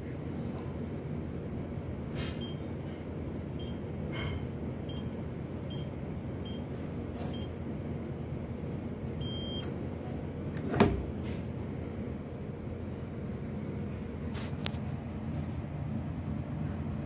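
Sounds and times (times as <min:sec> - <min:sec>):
keypad beeps: 0:03.6 - 0:03.8, 0:04.9 - 0:05.1, 0:05.7 - 0:06.6, 0:07.3 - 0:07.5, 0:09.2 - 0:09.7
long acceptance beep: 0:03.6 - 0:03.8, 0:04.9 - 0:05.1, 0:09.2 - 0:09.7.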